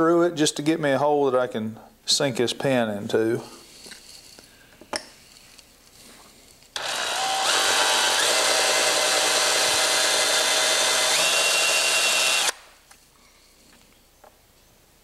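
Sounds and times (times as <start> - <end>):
power drill whining: 6.8 - 12.6.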